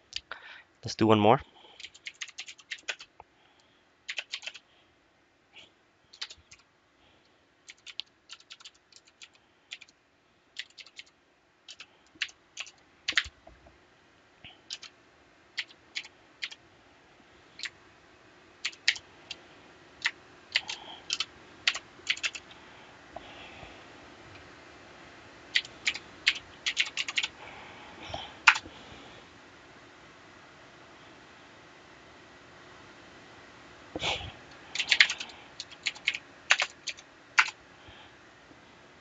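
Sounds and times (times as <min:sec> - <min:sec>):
keyboard typing clicks: 0:01.8 - 0:03.1, 0:04.1 - 0:04.6, 0:06.1 - 0:06.6, 0:07.7 - 0:09.9, 0:10.6 - 0:11.1, 0:11.7 - 0:13.3, 0:14.7 - 0:14.9, 0:15.6 - 0:16.6, 0:18.6 - 0:19.0, 0:20.0 - 0:22.4, 0:25.6 - 0:27.3, 0:28.5 - 0:28.7, 0:34.8 - 0:37.6.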